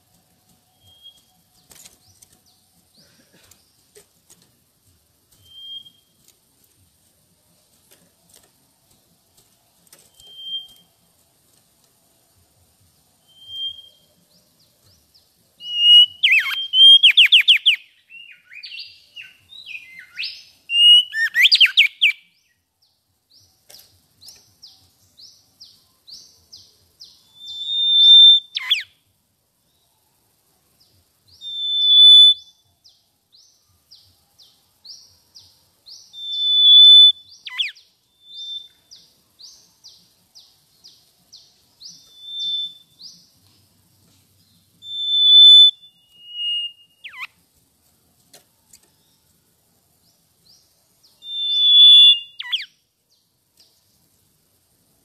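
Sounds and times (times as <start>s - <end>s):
bird whistling song: 0.7s - 2.3s, 5.3s - 6.2s, 10.0s - 10.9s, 13.2s - 15.0s, 15.6s - 22.6s, 23.3s - 29.0s, 31.3s - 43.3s, 44.4s - 47.4s, 50.4s - 52.8s.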